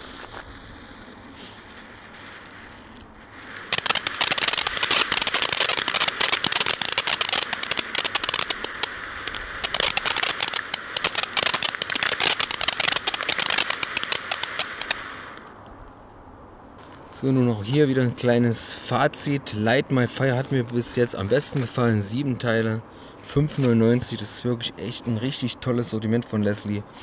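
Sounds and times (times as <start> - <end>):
fuse hissing: 0.0 - 15.8
firework fountain crackling: 0.0 - 16.0.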